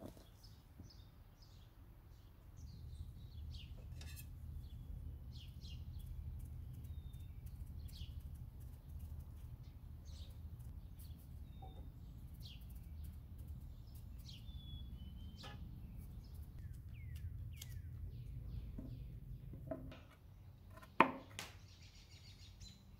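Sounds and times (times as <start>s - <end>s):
small birds chirping: 0.0s - 22.9s
low background rumble: 2.1s - 20.4s.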